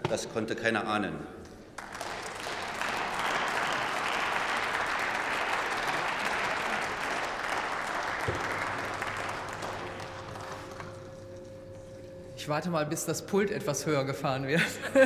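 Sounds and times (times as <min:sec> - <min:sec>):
applause: 0:01.7 - 0:11.3.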